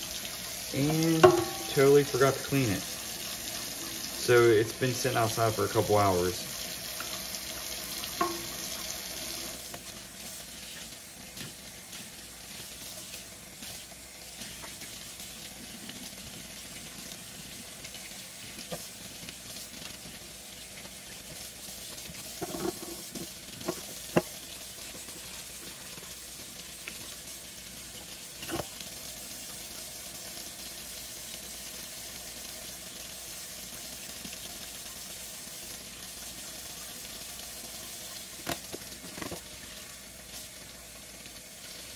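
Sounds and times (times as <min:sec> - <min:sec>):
faucet running into sink: 0:00.0 - 0:30.0.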